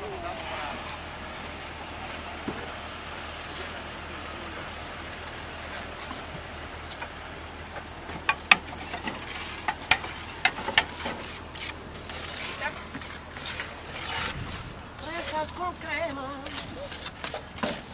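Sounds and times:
outdoor background noise: 0.0s - 17.9s
sharp clicks and knocks: 7.7s - 11.8s.

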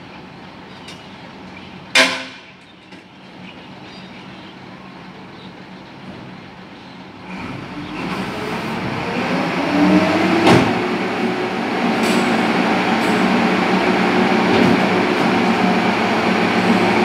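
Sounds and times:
metallic clang: 2.0s - 2.7s
truck engine idling and revving: 7.2s - 17.0s
garbage compactor running: 7.4s - 17.0s.

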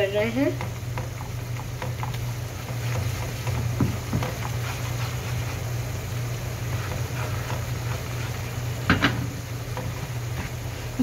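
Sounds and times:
butter and flour sizzling: 0.0s - 11.0s
steady low hum: 0.0s - 11.0s
spatula knocking on pan: 0.5s - 4.7s, 8.7s - 10.5s
spatula scraping pan: 0.8s - 10.9s.

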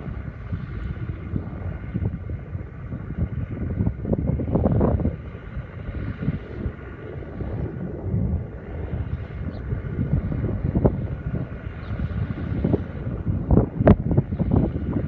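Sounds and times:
faint steady hum: 0.0s - 15.0s
wind buffeting microphone: 0.0s - 15.0s.

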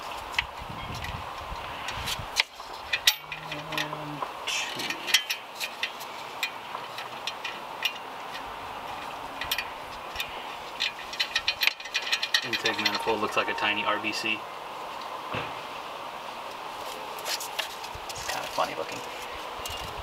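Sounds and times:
nuts threading clicks: 1.8s - 13.3s
parts clinking on metal: 1.8s - 13.8s.

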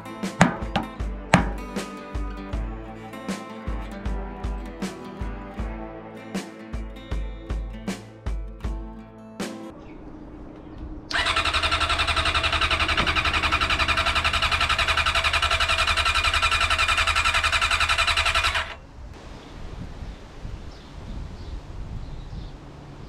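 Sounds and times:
electric starter cranking engine: 11.1s - 18.8s.

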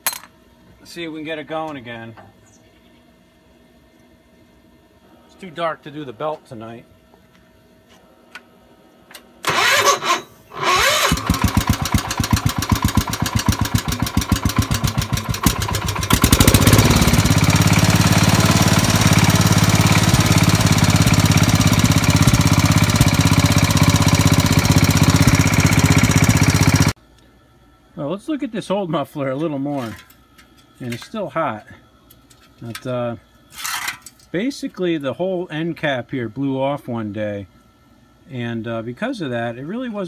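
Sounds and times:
engine cranking: 9.4s - 26.9s
single-cylinder engine running: 9.4s - 27.0s.

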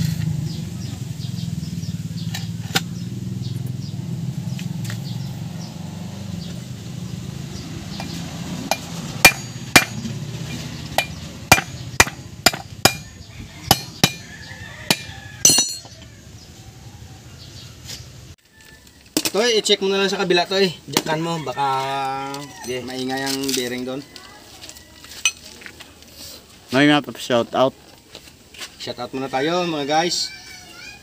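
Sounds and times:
hammer blows on metal: 8.0s - 10.2s, 11.0s - 14.3s, 14.9s - 15.9s.

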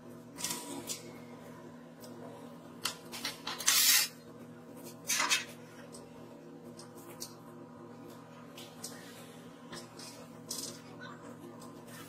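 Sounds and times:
steel sheet scraping: 3.5s - 4.2s.

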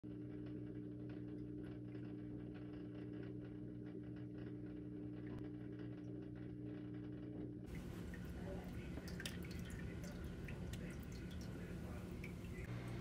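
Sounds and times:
low electrical hum: 0.0s - 13.0s
water ticking and pattering: 7.7s - 13.0s.

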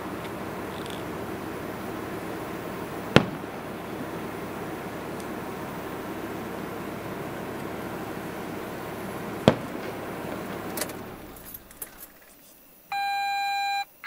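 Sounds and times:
steady hiss: 0.0s - 12.9s
firework bang: 2.6s - 5.7s, 7.7s - 11.6s.

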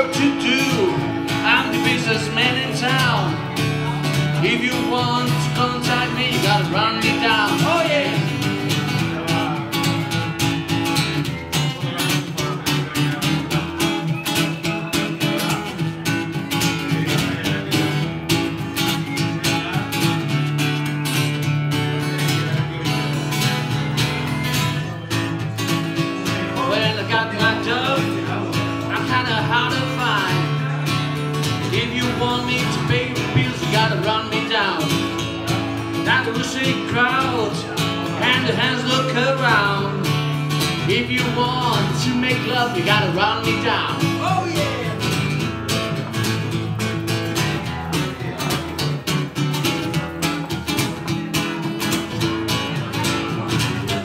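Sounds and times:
acoustic guitar strumming chords: 0.0s - 54.0s.

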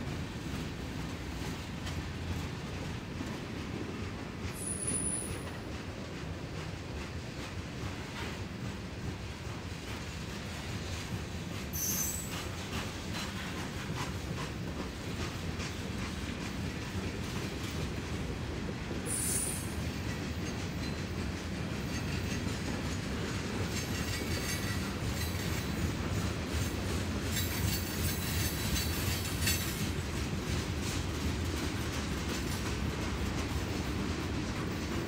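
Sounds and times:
train cars rumbling past: 0.0s - 35.0s
train wheels squealing: 4.4s - 6.7s, 9.9s - 16.4s, 19.0s - 31.2s.

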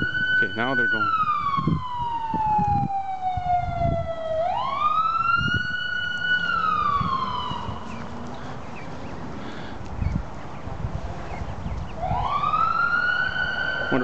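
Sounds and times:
siren wailing: 0.0s - 8.3s, 12.0s - 14.0s.

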